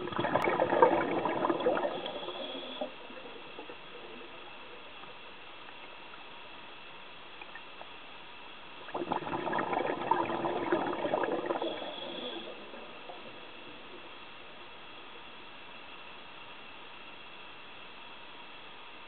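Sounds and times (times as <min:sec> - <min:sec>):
underwater bubbles gurgling: 0:00.0 - 0:06.5, 0:08.8 - 0:15.2
faint steady hiss: 0:00.0 - 0:19.0.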